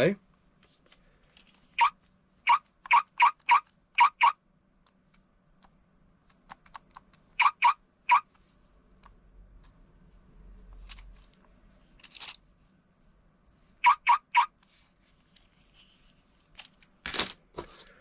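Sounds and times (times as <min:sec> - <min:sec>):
toy key fob chirping beeps: 0:02.5 - 0:04.4.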